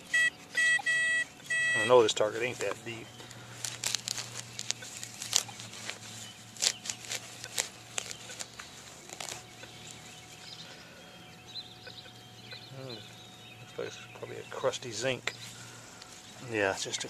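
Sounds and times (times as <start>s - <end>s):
faint high steady tone: 0.0s - 2.3s
low steady hum: 0.0s - 17.0s.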